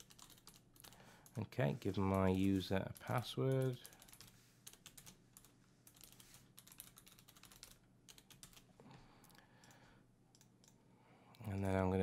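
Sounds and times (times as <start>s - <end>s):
typing on keyboard: 0.0s - 1.0s, 2.1s - 8.7s.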